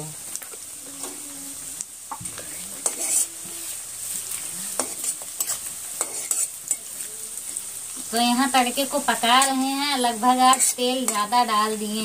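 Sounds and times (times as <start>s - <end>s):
oil sizzling in a metal pan: 0.0s - 12.0s
spatula scraping and clinking on pan: 2.8s - 3.4s, 4.7s - 6.9s, 10.3s - 11.4s.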